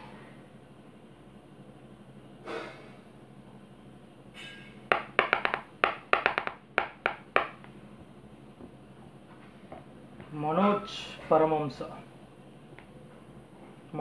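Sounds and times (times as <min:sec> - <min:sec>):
taps on wooden tabletop: 0:04.9 - 0:07.7.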